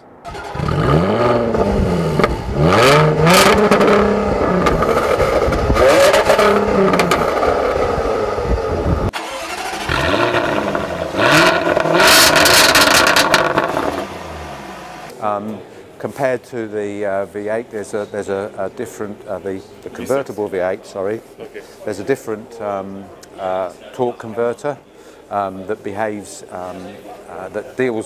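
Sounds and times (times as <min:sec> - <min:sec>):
car engine revving: 0:00.0 - 0:15.1.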